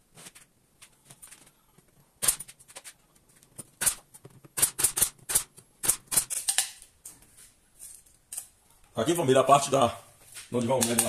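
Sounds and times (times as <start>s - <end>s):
pneumatic nailer shots with air hiss: 2.2s - 2.5s, 3.8s - 6.6s.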